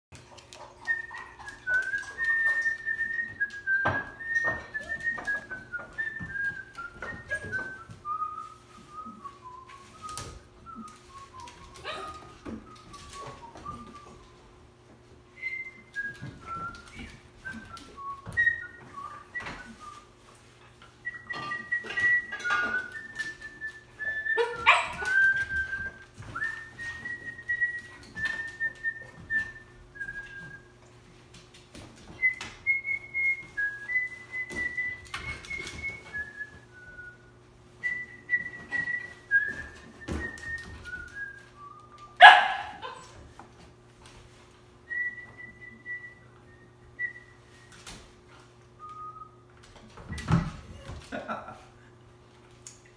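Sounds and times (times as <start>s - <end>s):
man whistling: 0.8s - 14.3s, 15.4s - 20.1s, 21.0s - 30.7s, 32.1s - 42.8s, 44.9s - 48.0s, 48.8s - 49.4s
puppy barking sharply: 42.2s - 42.9s.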